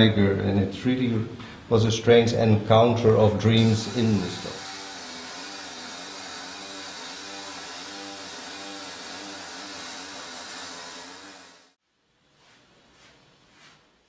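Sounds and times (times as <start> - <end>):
pneumatic hammer chiselling marble: 3.6 - 11.8.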